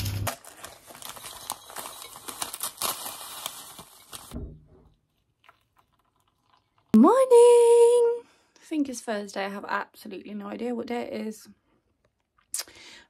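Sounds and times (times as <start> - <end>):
paper sachet crinkling and tearing: 0.0 - 4.4.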